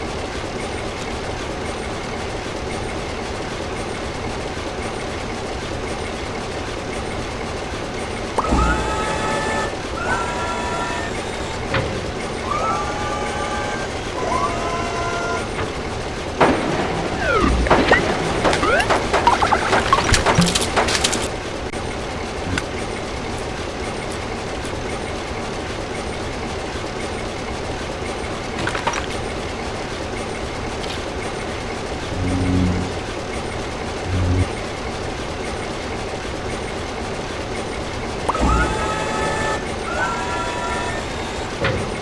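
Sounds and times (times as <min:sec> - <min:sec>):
vehicle running noise: 0:00.0 - 0:42.0
low horn blasts: 0:32.0 - 0:33.1, 0:34.0 - 0:34.5.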